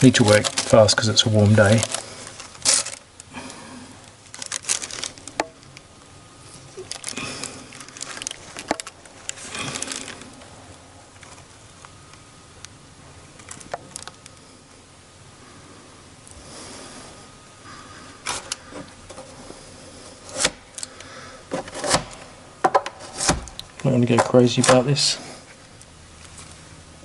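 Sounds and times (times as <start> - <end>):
plastic bag crinkling: 0.0 - 3.3, 4.0 - 10.5, 13.4 - 14.4.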